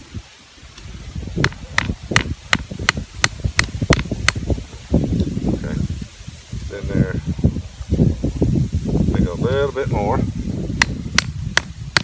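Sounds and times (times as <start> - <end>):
hammer striking wooden stake: 1.4 - 4.4, 10.8 - 12.0.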